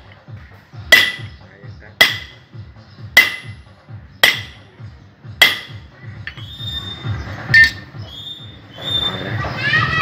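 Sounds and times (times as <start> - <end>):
hammer clanking on metal: 0.9 - 1.4, 2.0 - 2.4, 3.2 - 3.6, 4.2 - 4.7, 5.4 - 6.4.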